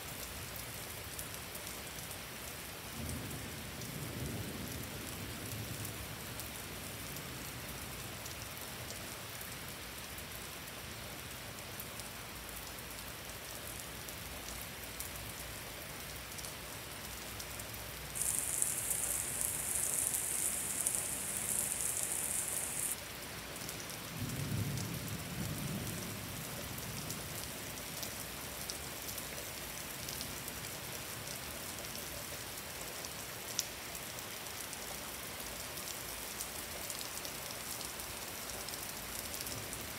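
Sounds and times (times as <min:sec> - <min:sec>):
steady rain: 0:00.0 - 0:39.9
loud high hiss: 0:18.1 - 0:23.0
low rumble of thunder: 0:24.1 - 0:27.4.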